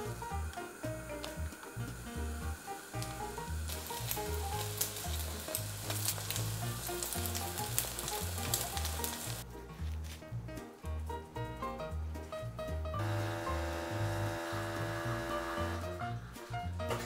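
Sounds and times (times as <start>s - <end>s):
bread frying in butter: 0.0s - 9.4s, 13.0s - 17.0s.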